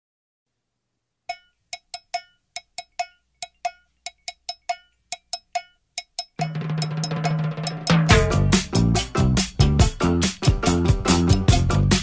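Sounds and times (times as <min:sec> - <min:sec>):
cowbell hits: 0:01.3 - 0:09.8.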